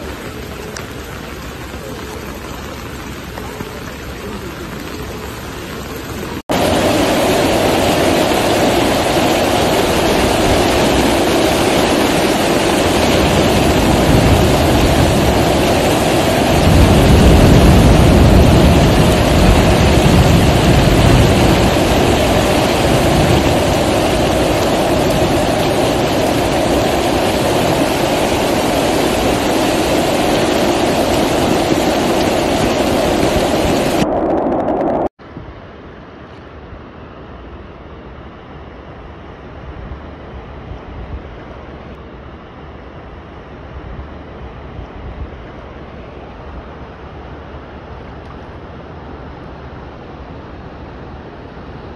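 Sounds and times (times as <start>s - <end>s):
floodwater rushing: 0.0s - 35.1s
heavy rain pouring: 0.0s - 35.1s
deep rumble: 6.1s - 35.2s.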